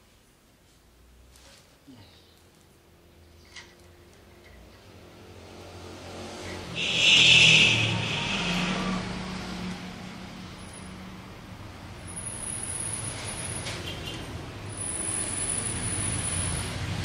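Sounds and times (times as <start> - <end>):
vehicle passing by: 4.6 - 17.0.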